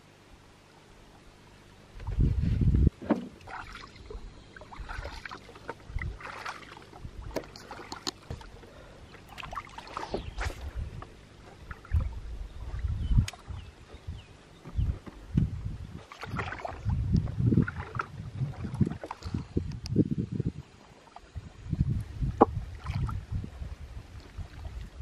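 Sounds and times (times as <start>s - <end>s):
water splashes: 3.1s - 10.8s, 11.4s - 13.6s, 15.9s - 19.6s, 22.2s - 25.0s.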